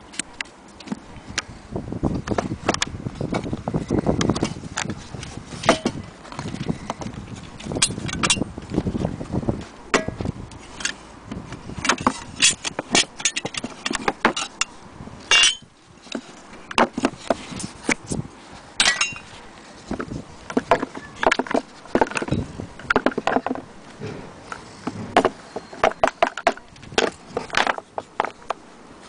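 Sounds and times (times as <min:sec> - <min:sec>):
ringing metal clink: 0:15.3 - 0:15.7, 0:18.8 - 0:19.3
taps and clicks handling wooden box: 0:19.9 - 0:23.7, 0:24.5 - 0:28.6.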